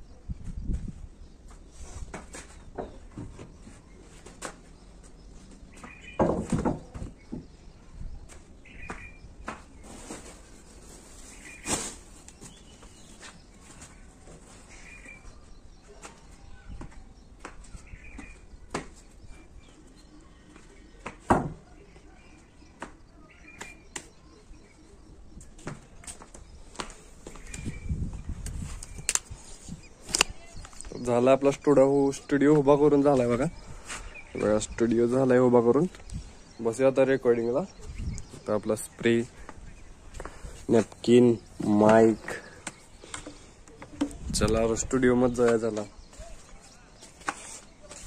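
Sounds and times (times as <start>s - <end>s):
birds chirping faintly: 0.0s - 48.0s
knocks and thumps: 5.8s - 7.5s, 21.0s - 21.6s
sandal footsteps on concrete: 8.2s - 10.7s, 11.4s - 24.2s, 25.4s - 29.2s, 39.3s - 48.0s.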